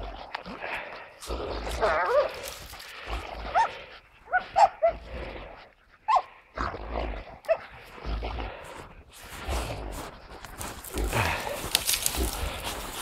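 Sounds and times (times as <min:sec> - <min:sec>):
rustling and scuffling in snow: 0:01.1 - 0:03.7, 0:08.0 - 0:13.0
dogs yelping and whining: 0:01.8 - 0:02.6, 0:03.5 - 0:05.0, 0:06.0 - 0:06.4.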